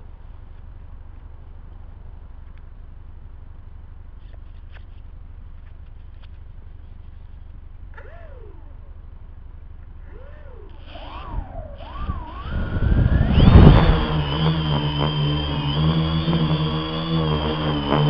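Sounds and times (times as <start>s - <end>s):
short rising and falling whines: 7.9s - 18.0s
wind rumbling on microphone: 10.1s - 18.0s.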